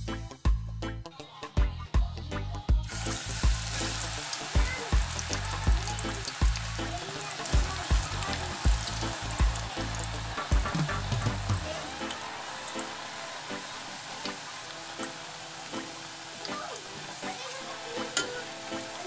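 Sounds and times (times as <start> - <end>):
background music with kick drum: 0.0 - 14.4
slices deep-frying in hot oil: 2.8 - 19.0.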